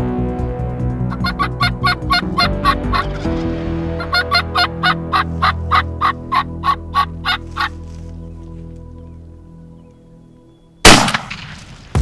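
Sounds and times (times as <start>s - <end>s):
wild turkeys yelping: 1.1s - 3.2s, 4.0s - 7.8s.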